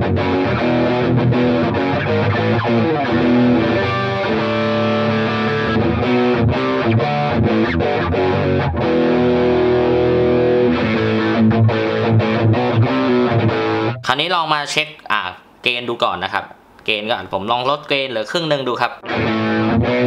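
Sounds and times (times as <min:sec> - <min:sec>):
distorted electric guitar: 0:00.0 - 0:14.1, 0:19.0 - 0:20.0.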